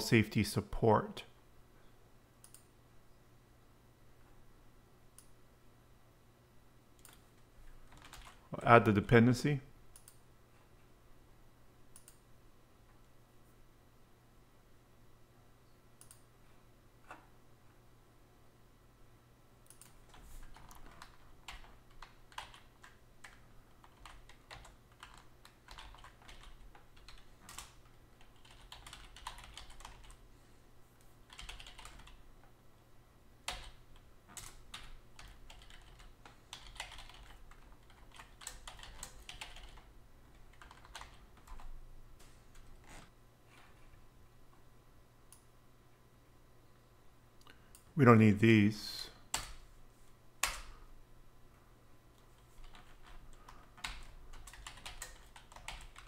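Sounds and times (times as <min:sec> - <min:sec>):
keyboard typing: 0:07.8 - 0:08.4, 0:19.6 - 0:30.2, 0:31.2 - 0:32.2, 0:33.4 - 0:41.7, 0:52.4 - 0:56.0.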